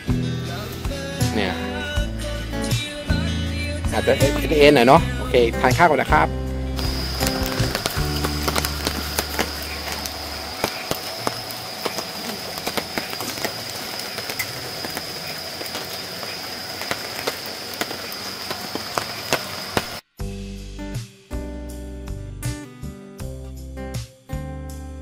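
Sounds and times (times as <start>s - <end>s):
acoustic guitar music: 0.0s - 17.0s, 19.6s - 25.0s
insect clicks: 6.8s - 20.0s
insects trilling: 6.8s - 20.0s.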